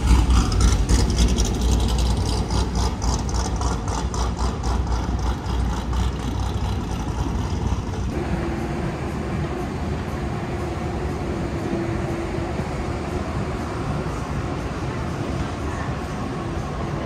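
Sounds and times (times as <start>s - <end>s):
city street traffic: 0.0s - 17.0s
heavy vehicle engine rumbling: 0.0s - 17.0s.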